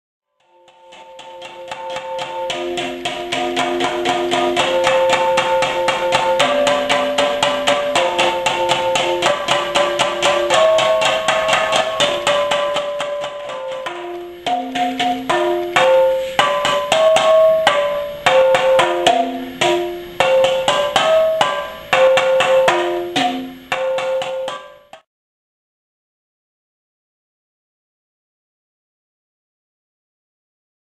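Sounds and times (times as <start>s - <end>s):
marimba played with mallets: 0.4s - 25.0s.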